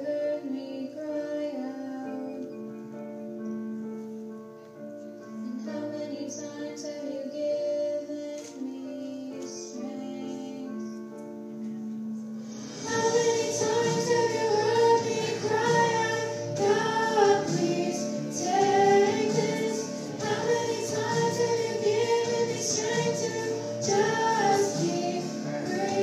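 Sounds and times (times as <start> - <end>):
women singing together: 12.8 - 26.0.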